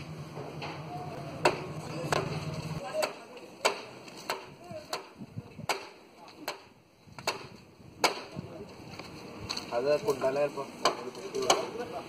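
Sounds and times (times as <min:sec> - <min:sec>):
chopping into wood: 0:01.4 - 0:08.4, 0:10.8 - 0:11.8.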